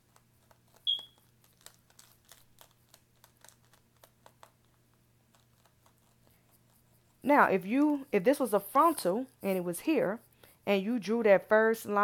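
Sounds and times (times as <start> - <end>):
pencil scratching on wig cap: 5.3 - 11.2.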